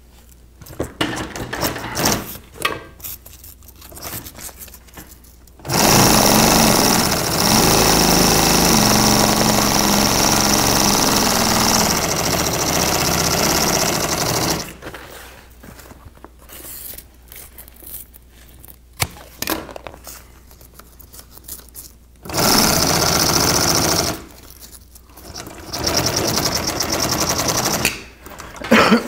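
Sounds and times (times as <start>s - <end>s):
industrial sewing machine stitching: 5.6s - 14.8s, 22.2s - 24.3s, 25.2s - 28.6s.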